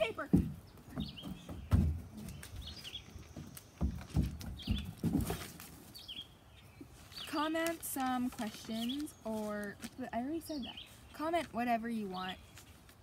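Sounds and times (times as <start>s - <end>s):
dull thumps: 0.0s - 5.8s
bird chirps: 0.6s - 3.9s.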